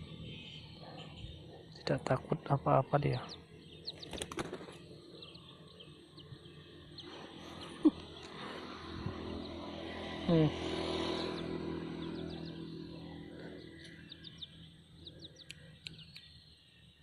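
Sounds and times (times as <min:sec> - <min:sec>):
chick peeping: 0:13.8 - 0:16.4.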